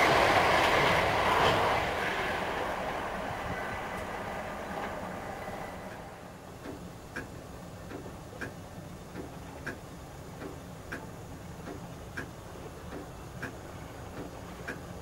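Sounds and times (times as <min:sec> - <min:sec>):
faint outdoor rumble: 0:00.0 - 0:15.0
train passing: 0:00.0 - 0:15.0
clock ticking: 0:06.6 - 0:15.0.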